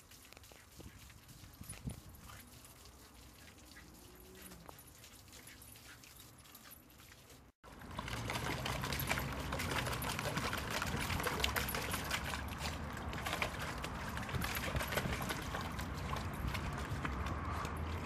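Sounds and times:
dog splashing in paddling pool: 0:00.0 - 0:18.0.

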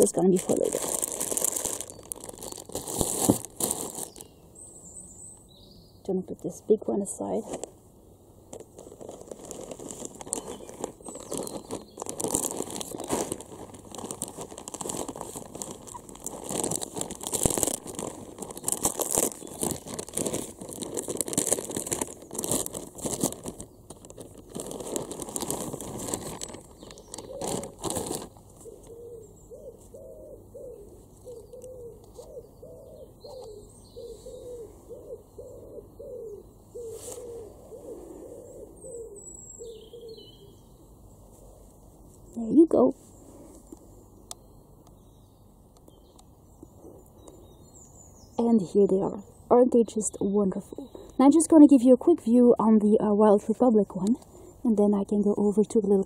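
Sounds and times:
plastic bag crinkling: 0:00.0 - 0:04.3, 0:08.5 - 0:28.6
pigeon cooing: 0:27.0 - 0:40.6.

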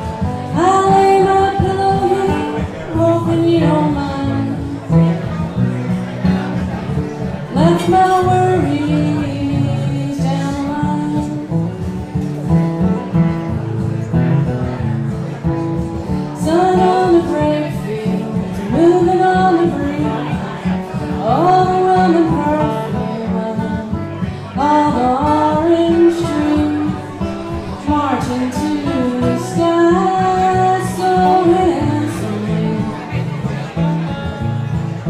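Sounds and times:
person singing: 0:00.0 - 0:05.0, 0:07.5 - 0:11.7, 0:16.4 - 0:33.3
acoustic guitars strumming: 0:00.0 - 0:35.0.

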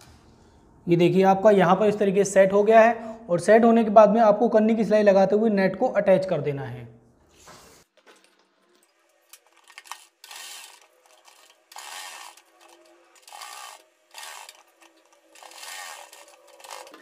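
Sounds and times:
sewing machine stitching: 0:09.5 - 0:17.0.

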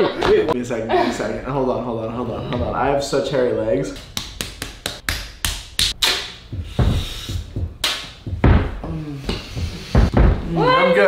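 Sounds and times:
dull thumps: 0:06.4 - 0:10.7.

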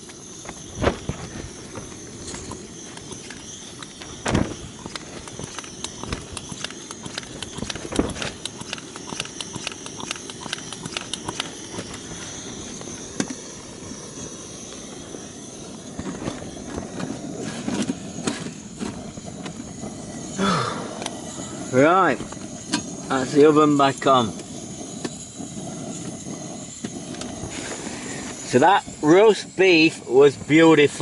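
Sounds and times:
camp stove hissing: 0:00.0 - 0:31.0
metal camp gear clicking and knocking: 0:02.3 - 0:12.0.

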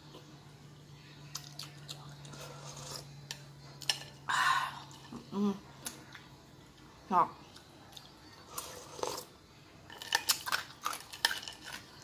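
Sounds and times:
soft chewing: 0:01.0 - 0:04.0, 0:04.8 - 0:09.4.

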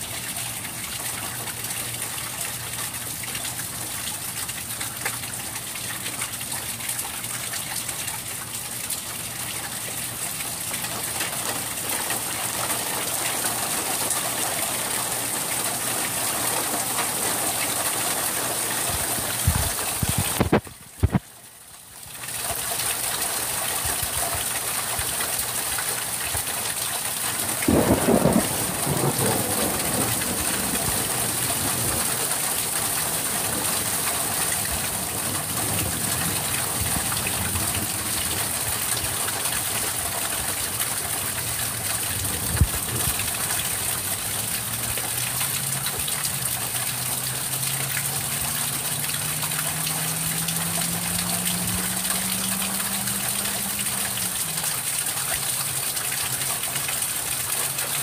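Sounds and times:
steady rain: 0:00.0 - 0:58.0
thunder: 0:27.6 - 0:32.1.

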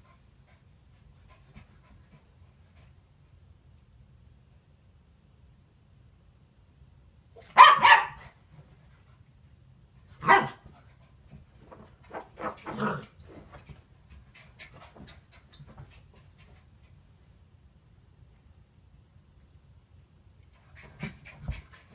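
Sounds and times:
dog barking: 0:07.5 - 0:08.3, 0:10.2 - 0:10.6
dog yipping: 0:07.6 - 0:08.2
dog panting: 0:13.6 - 0:17.1.

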